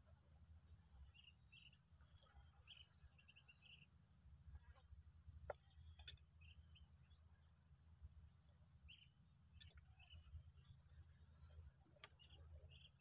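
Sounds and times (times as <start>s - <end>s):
small clicks: 11.7s - 12.9s.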